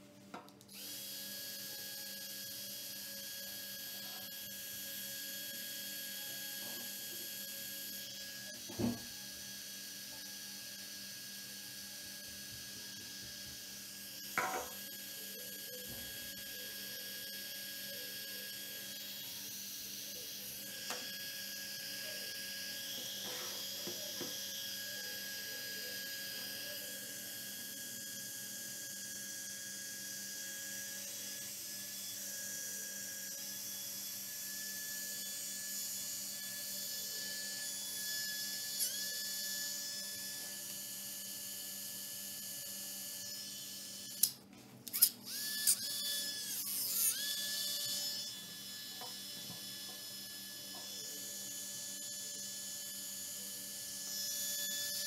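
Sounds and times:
small fan whining: 0.0s - 55.0s.

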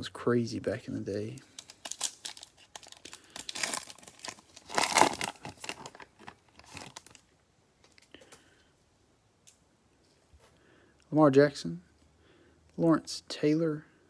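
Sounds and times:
foil wrapper tearing and crinkling: 1.3s - 7.2s.

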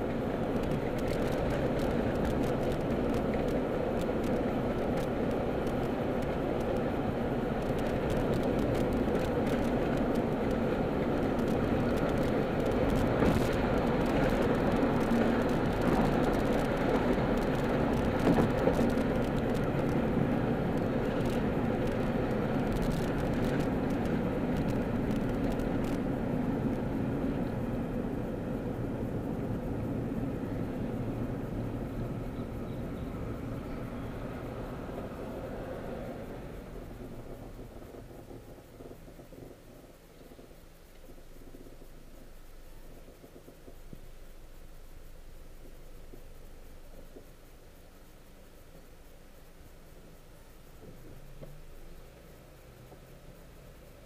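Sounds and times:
car cabin road and engine rumble: 0.0s - 54.0s.

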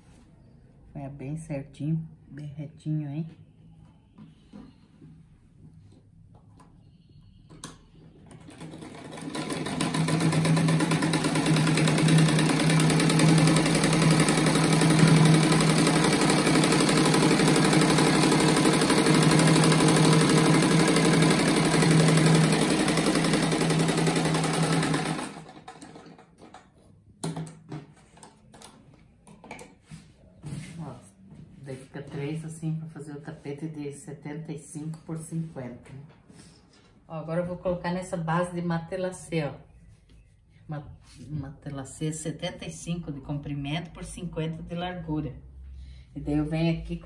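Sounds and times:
sewing machine stitching: 8.3s - 26.5s.

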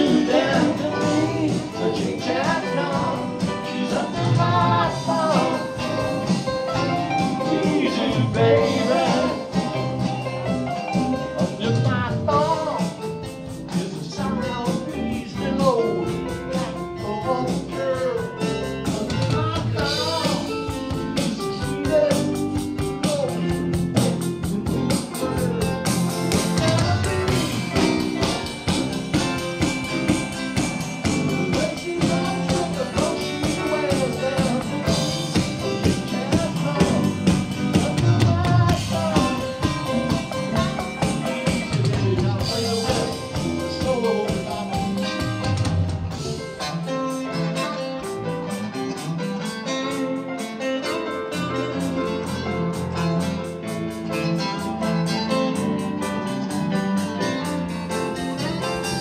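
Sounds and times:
person singing: 0.0s - 10.0s, 10.7s - 13.0s, 13.6s - 25.5s, 31.2s - 45.5s, 51.6s - 59.0s
bass: 0.0s - 59.0s
electric guitar: 0.0s - 59.0s
electronic drums: 19.0s - 46.4s.

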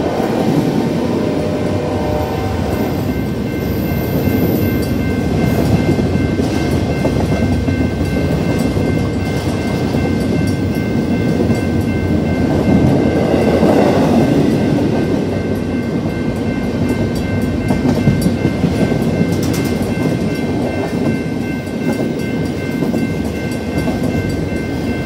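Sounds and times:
crossing bell ringing: 0.0s - 25.0s
freight cars rumbling over rails: 0.0s - 25.0s.

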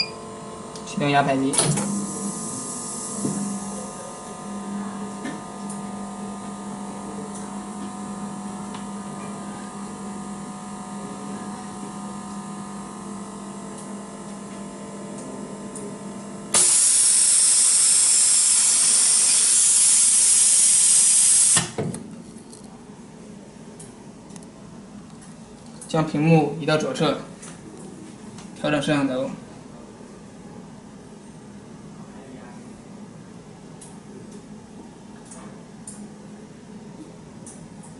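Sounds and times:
electrical hum with low buzz: 0.0s - 37.9s
loud air hiss: 16.6s - 21.6s.

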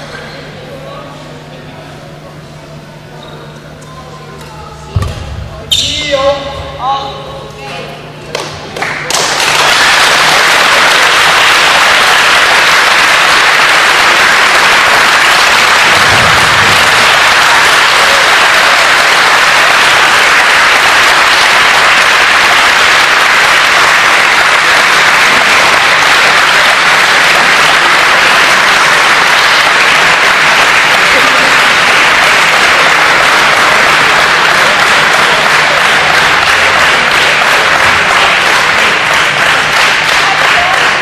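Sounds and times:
crowd applauding: 8.3s - 41.0s.

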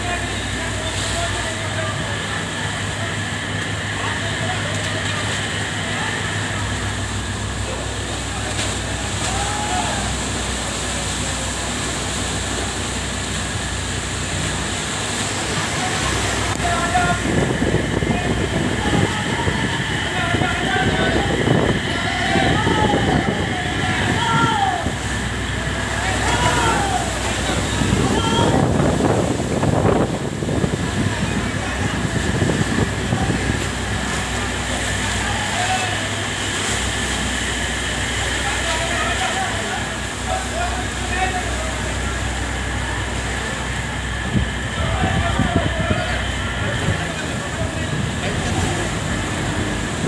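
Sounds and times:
indistinct voices: 0.0s - 50.0s
storm wind: 16.1s - 34.0s, 43.7s - 50.0s.

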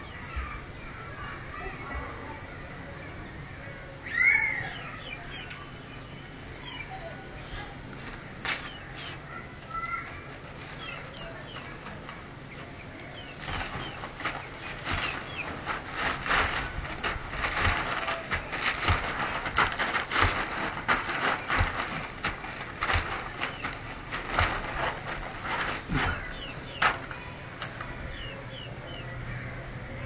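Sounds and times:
body scuffing on ground sheet: 7.9s - 9.3s, 10.0s - 28.4s
soft thumps: 12.6s - 27.9s.

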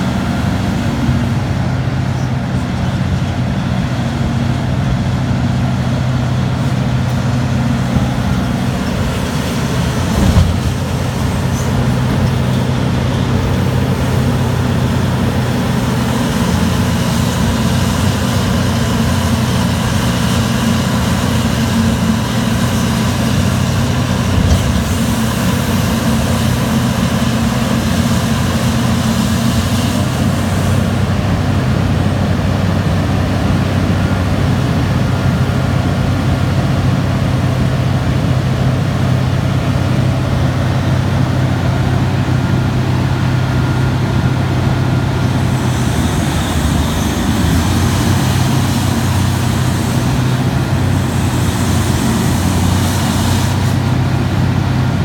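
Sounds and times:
mining shovel engine running: 0.0s - 55.0s
heavy thud: 7.8s - 12.2s.

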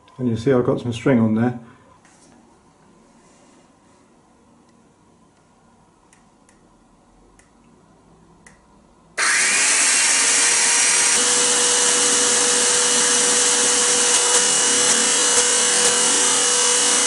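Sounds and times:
electric drill running: 9.2s - 17.0s.

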